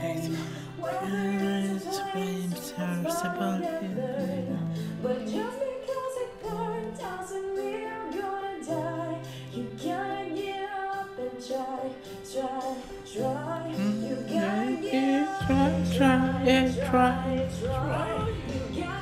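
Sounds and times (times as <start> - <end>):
woman singing a slow song: 0.0 - 19.0
instrumental accompaniment: 9.8 - 19.0.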